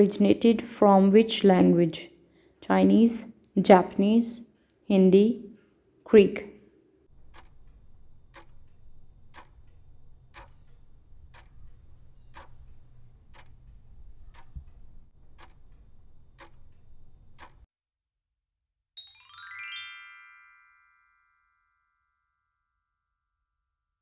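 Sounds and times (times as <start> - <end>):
clock ticking: 7.1 - 17.7.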